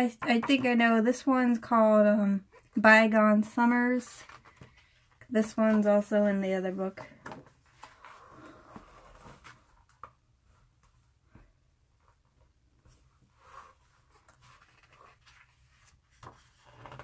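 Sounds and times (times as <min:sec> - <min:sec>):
book pages rustling: 0:12.0 - 0:17.0.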